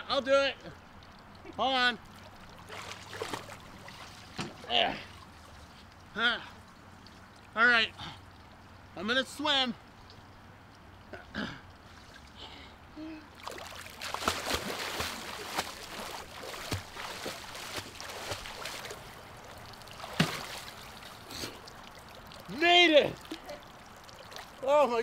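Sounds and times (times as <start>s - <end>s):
swimmer splashing: 2.0s - 5.9s, 13.3s - 25.0s
loud sharp splash: 13.4s - 19.1s, 20.0s - 21.5s.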